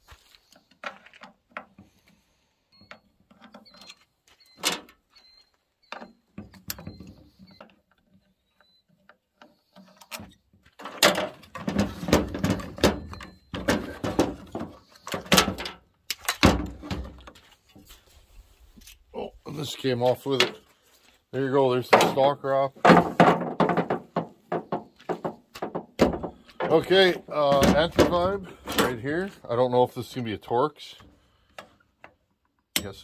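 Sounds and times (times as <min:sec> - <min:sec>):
plastic and metal clattering: 0:09.6 - 0:18.0, 0:21.8 - 0:29.4.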